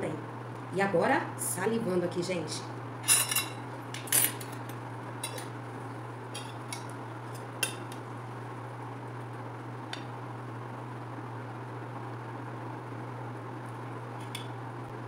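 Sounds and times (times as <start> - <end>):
cutlery clinking on plate: 3.1 - 4.6.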